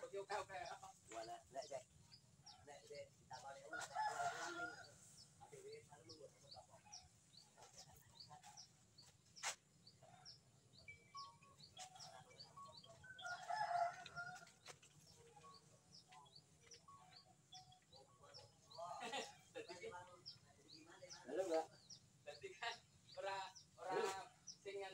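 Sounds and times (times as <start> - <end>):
rooster crowing: 3.8 - 5.0, 13.2 - 14.6.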